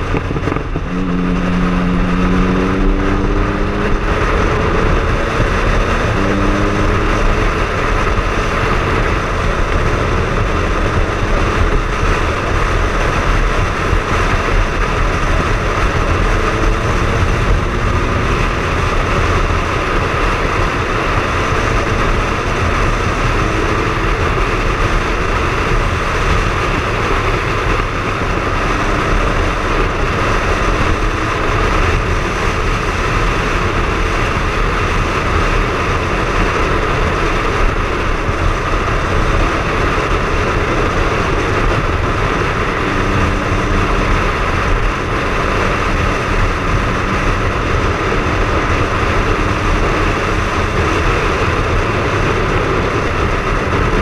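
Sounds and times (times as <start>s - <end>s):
motorcycle engine running: 0.0s - 54.0s
rushing wind noise: 0.0s - 54.0s.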